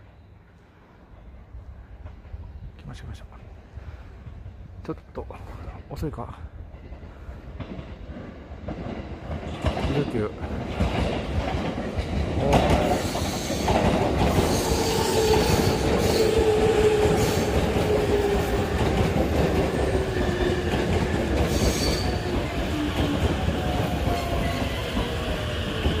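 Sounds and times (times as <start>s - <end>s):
train wheels clattering on rails: 6.6s - 26.0s.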